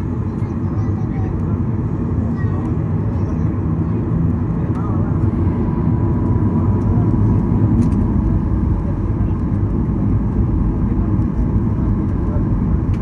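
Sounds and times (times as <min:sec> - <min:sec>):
airplane cabin engine rumble: 0:00.0 - 0:13.0.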